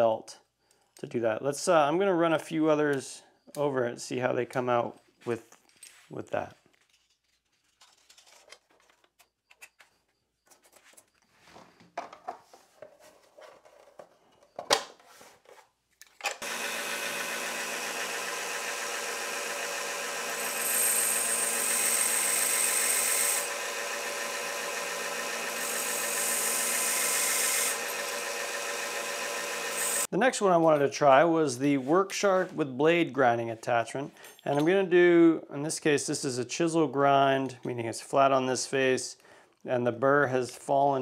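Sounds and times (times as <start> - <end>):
belt sander running: 16.4 - 30.1
steel wheel grinding on belt: 16.4 - 30.1.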